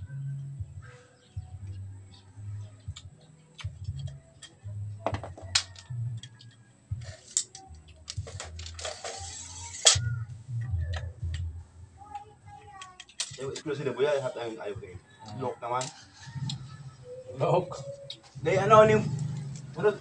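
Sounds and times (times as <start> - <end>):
low uneven rumble: 16.1 - 20.0.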